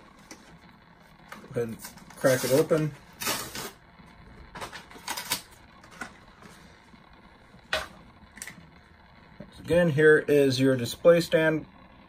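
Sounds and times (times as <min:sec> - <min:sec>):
plastic package clicking and crackling: 0:04.5 - 0:06.1.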